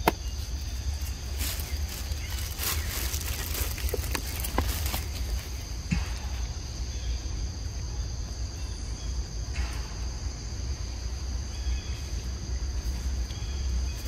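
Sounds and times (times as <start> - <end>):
rustling: 0.2 - 5.8.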